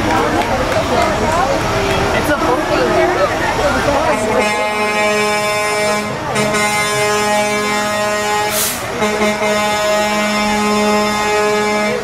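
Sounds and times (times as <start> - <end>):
vehicle air horn blast: 4.1 - 12.0
short hiss: 8.5 - 8.9.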